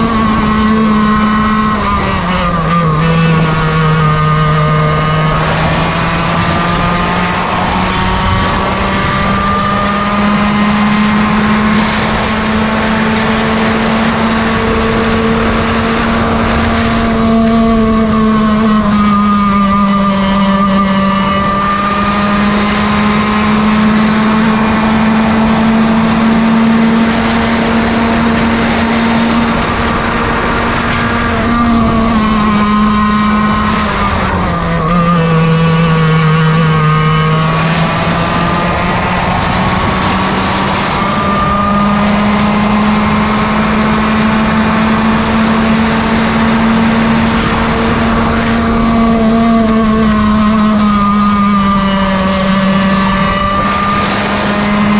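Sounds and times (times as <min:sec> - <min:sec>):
go-kart engine buzzing: 0:00.0 - 0:54.9.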